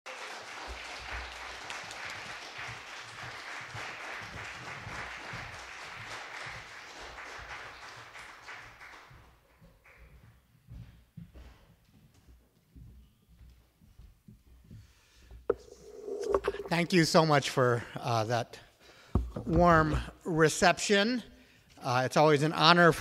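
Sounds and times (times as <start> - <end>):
audience applauding: 0.1 - 10.0.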